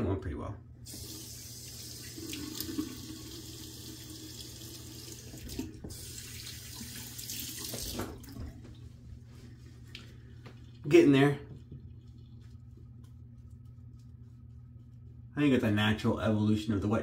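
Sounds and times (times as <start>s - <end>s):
tap running into sink: 5.2s - 8.6s.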